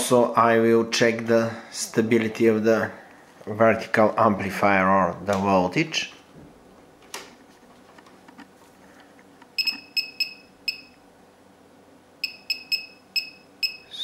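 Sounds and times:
short electronic key beeps: 9.6s - 11.0s, 12.2s - 14.0s.

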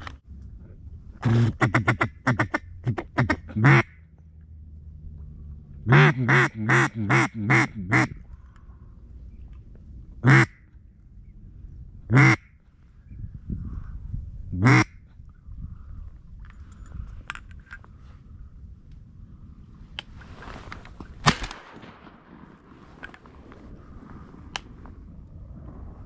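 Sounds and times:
duck call quacks: 1.2s - 4.0s, 5.8s - 8.2s, 10.2s - 10.6s, 12.1s - 12.5s, 14.6s - 15.0s.

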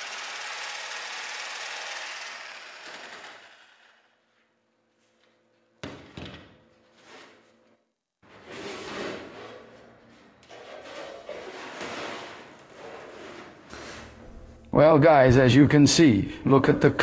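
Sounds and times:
jigsaw cutting steel sheet: 0.0s - 4.3s.

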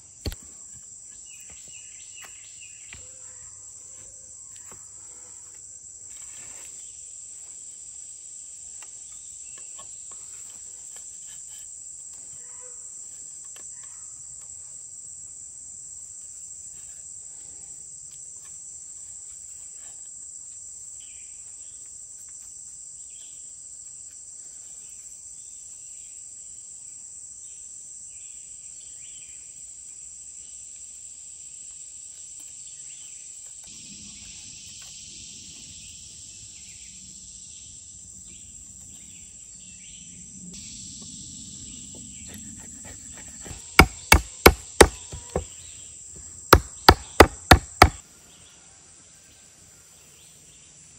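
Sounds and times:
high-pitched insect chorus: 14.4s - 50.9s.

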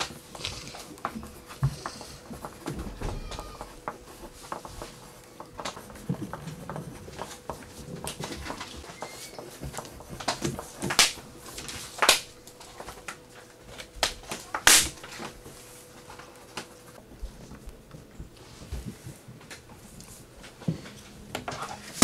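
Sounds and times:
pencils scratching on paper: 0.0s - 17.6s.

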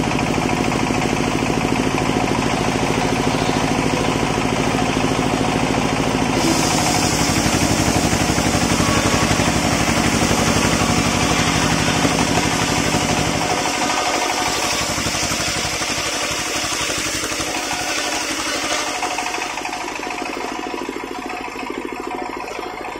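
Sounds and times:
engine pulsing: 0.0s - 22.9s
saw blade cutting wood: 6.4s - 20.1s.

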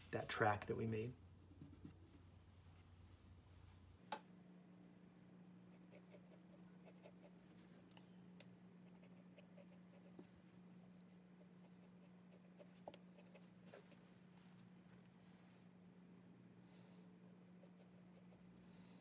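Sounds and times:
low steady hum: 0.0s - 19.0s
pencil scratching on paper: 5.7s - 7.4s, 8.8s - 10.2s, 11.4s - 14.0s, 17.6s - 18.5s.

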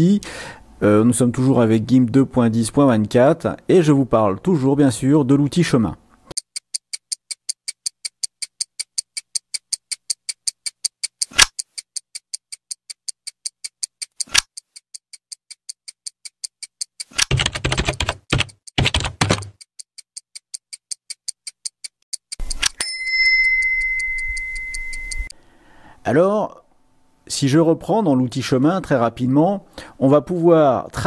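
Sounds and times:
stopwatch ticking: 6.3s - 25.4s.

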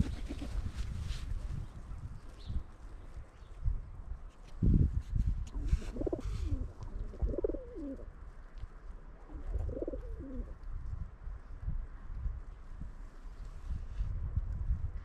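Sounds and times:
pigeons cooing: 0.0s - 0.6s, 5.6s - 8.1s, 9.2s - 10.5s.

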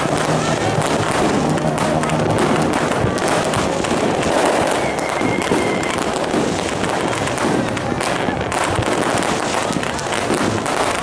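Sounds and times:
fireworks bangs and crackling: 0.0s - 11.0s.

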